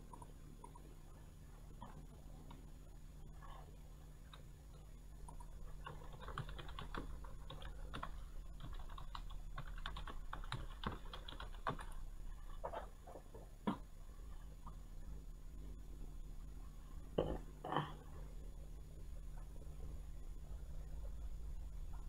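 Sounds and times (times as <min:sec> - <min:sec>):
low steady hum: 0:00.0 - 0:22.0
keyboard typing clicks: 0:05.2 - 0:12.0.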